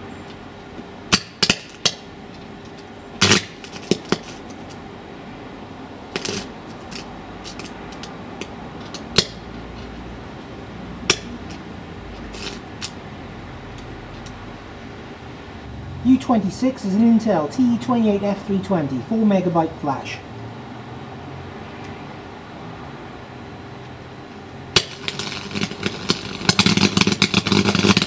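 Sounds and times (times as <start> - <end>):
electric arc crackling and popping: 0.0 - 4.8, 6.1 - 19.6, 24.7 - 28.0
low hum: 4.7 - 26.4.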